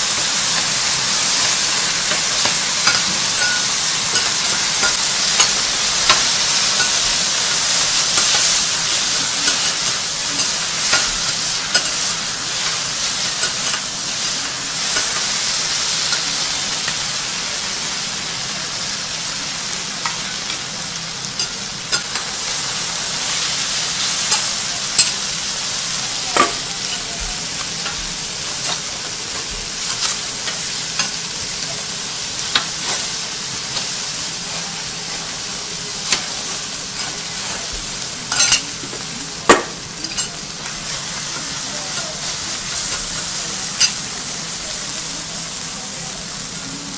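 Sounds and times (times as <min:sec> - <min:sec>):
food sizzling on a griddle: 0:00.0 - 0:46.9.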